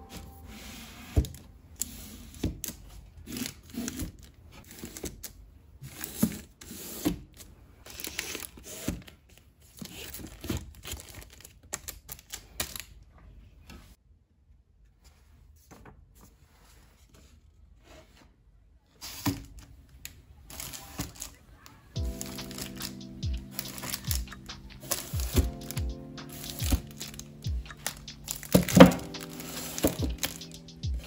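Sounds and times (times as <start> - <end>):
plastic wrap crinkling: 9.3 - 12.9, 20.5 - 30.8.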